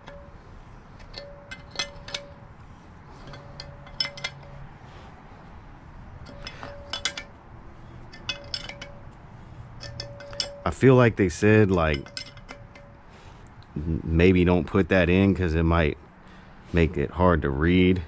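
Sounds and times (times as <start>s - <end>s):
wrench clinking on metal: 0.0s - 2.5s, 3.1s - 4.8s, 6.2s - 13.1s.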